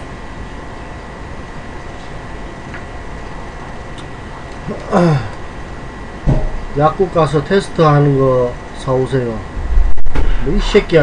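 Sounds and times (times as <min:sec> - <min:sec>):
room noise: 0:00.0 - 0:11.0
person speaking: 0:06.7 - 0:09.5.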